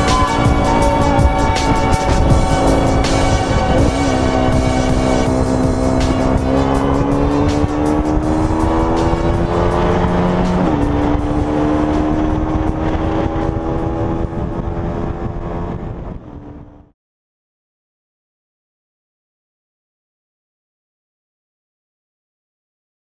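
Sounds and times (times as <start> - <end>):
motorcycle engine accelerating: 0.0 - 16.9.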